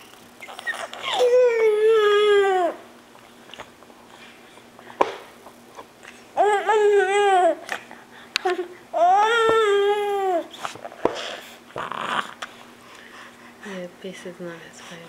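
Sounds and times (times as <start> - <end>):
baby whining cry: 0.4 - 2.8, 6.4 - 7.7, 8.4 - 10.6.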